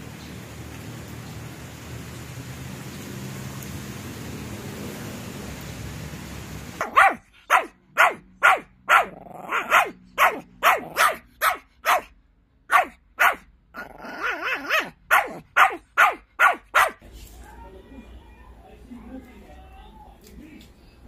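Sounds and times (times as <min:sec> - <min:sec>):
steady rain: 0:00.0 - 0:06.9
dog whining: 0:06.8 - 0:12.1, 0:12.8 - 0:16.6
small dog barking: 0:06.8 - 0:12.1, 0:12.7 - 0:17.0.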